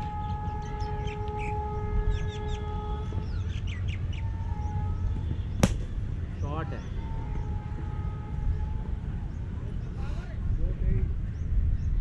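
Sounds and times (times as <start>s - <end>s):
wind rumble on microphone: 0.0s - 12.0s
birds chirping: 0.1s - 7.6s.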